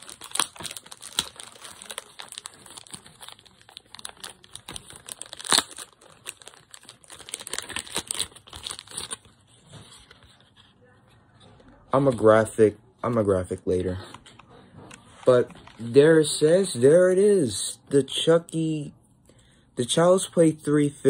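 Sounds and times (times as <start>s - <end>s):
plastic wrapping crinkling: 0.0s - 10.6s.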